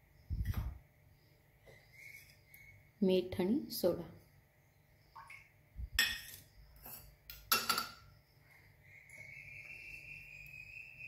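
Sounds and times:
faint high whine: 0.0 - 11.0
dishes and utensils clinking: 6.0 - 8.1.

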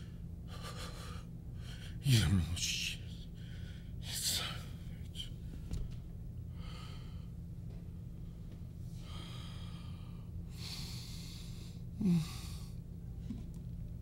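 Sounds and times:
man breathing heavily: 0.0 - 2.0, 3.3 - 4.0, 6.4 - 7.5, 8.2 - 12.8
steady low hum: 0.0 - 14.0
man groaning low: 12.0 - 12.6.

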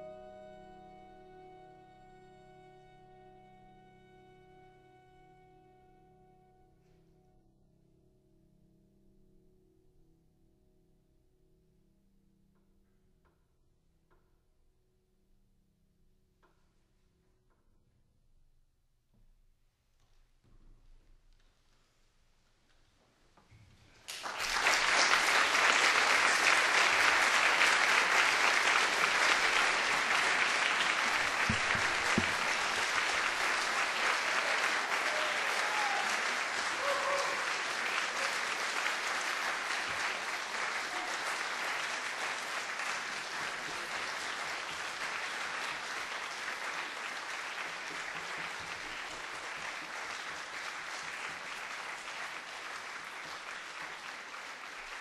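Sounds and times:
audience applauding: 24.0 - 55.0.

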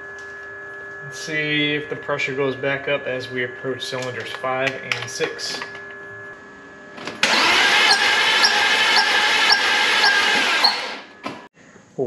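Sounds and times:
car engine cranking on starter: 7.2 - 11.1.

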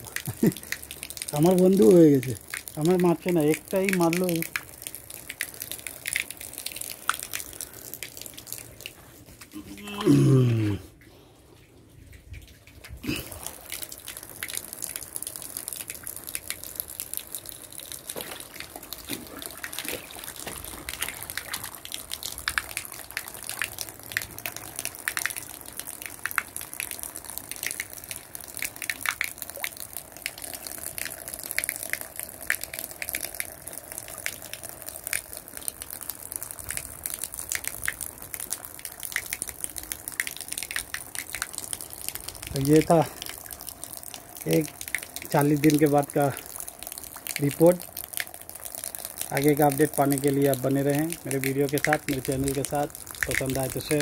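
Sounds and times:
shallow water trickling and splashing: 0.0 - 54.0.

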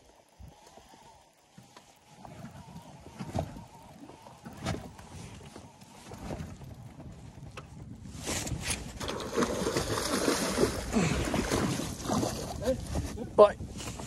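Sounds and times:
water splashing: 9.0 - 12.8.

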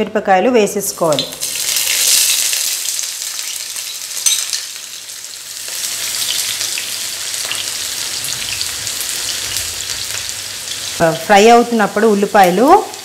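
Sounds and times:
onions sizzling in hot oil: 0.9 - 13.0.

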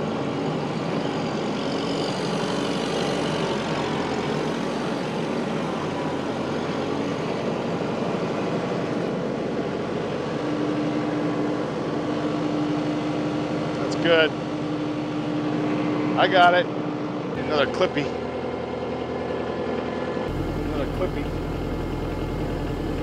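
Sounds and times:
tractor diesel engine running: 18.2 - 23.0
steady tone: 20.3 - 23.0.

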